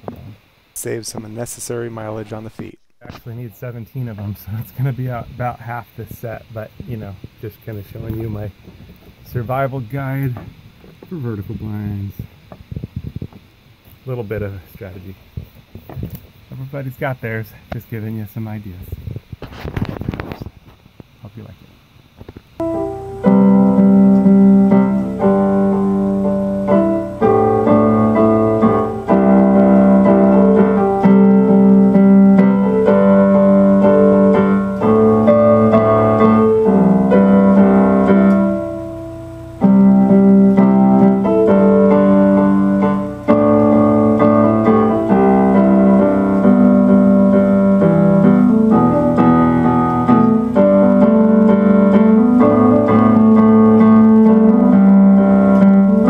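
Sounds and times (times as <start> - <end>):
slow piano chords: 22.6 - 56.0.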